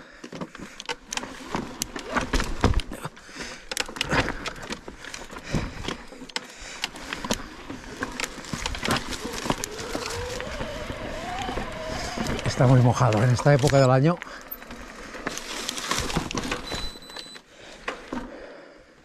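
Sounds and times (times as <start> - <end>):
electric motor whine: 8.6 - 13.4.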